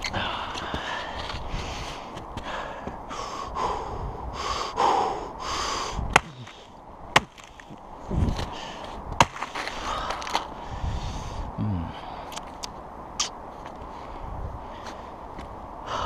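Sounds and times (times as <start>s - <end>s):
axe chopping tree trunk: 6.1s - 7.7s, 9.2s - 9.7s.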